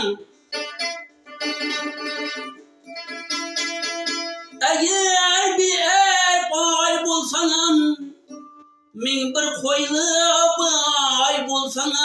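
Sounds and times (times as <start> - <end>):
man singing: 0.0 - 0.3, 4.6 - 8.3, 8.9 - 12.0
plucked lute: 0.0 - 12.0.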